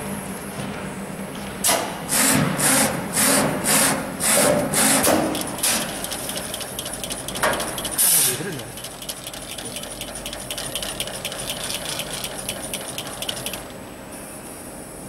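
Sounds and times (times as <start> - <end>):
hissy mechanical bursts: 2.1 - 13.7
low machine hum: 4.6 - 14.5.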